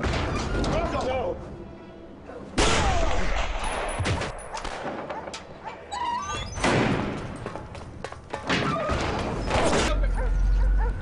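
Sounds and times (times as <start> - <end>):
film soundtrack music: 0.0 - 3.9.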